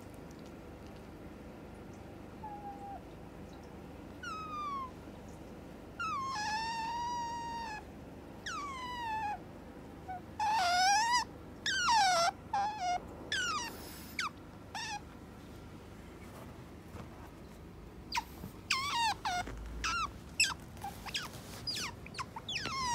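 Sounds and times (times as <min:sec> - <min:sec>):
otter high-pitched squeaks: 0:18.1 - 0:22.9.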